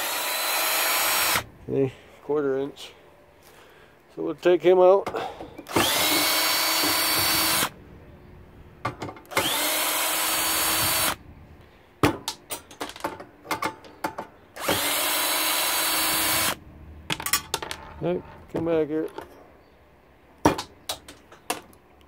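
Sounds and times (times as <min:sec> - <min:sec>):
cordless drill whining: 0:00.0 - 0:01.4, 0:05.7 - 0:07.8, 0:09.3 - 0:11.2, 0:14.6 - 0:16.6.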